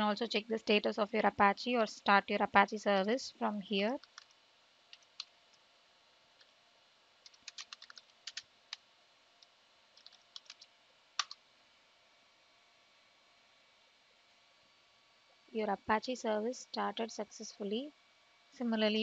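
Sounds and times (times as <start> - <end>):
computer keyboard typing: 4.0 - 5.3, 7.2 - 8.8, 9.9 - 11.4.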